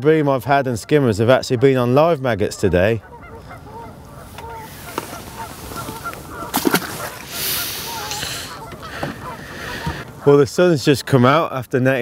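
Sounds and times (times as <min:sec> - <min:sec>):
geese honking in the distance: 0:00.3 - 0:11.6.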